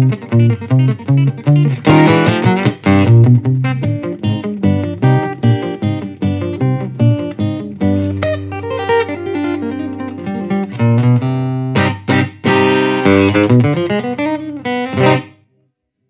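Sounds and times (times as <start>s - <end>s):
fingerstyle acoustic guitar: 0.0s - 15.4s.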